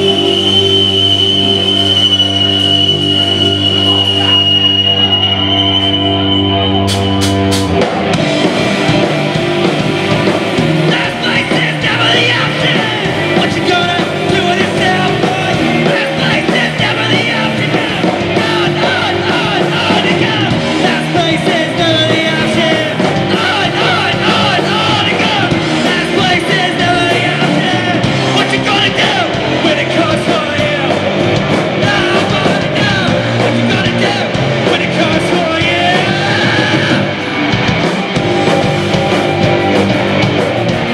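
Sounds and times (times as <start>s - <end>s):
rock band playing live: 0.0s - 40.9s
man singing: 10.8s - 37.2s.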